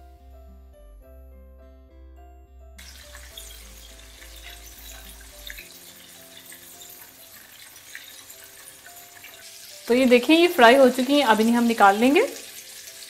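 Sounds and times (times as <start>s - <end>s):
background music: 0.0s - 13.0s
chicken deep-frying in hot oil: 2.8s - 13.0s.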